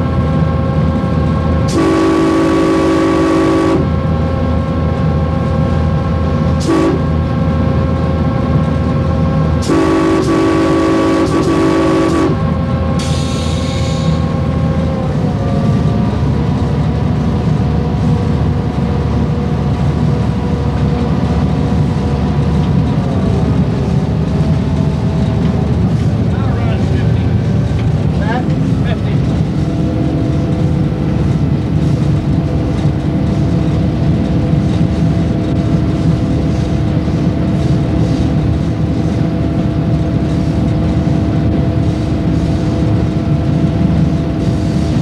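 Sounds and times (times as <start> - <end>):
locomotive engine drone: 0.0 - 45.0
rail rumble: 0.0 - 45.0
air horn blasts: 1.7 - 4.0, 6.6 - 7.2, 9.6 - 12.6.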